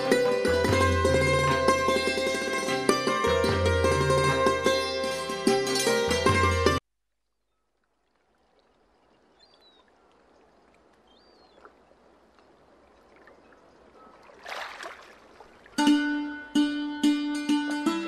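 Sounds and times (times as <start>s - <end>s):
plucked-string music: 0.0s - 6.8s, 15.8s - 18.0s.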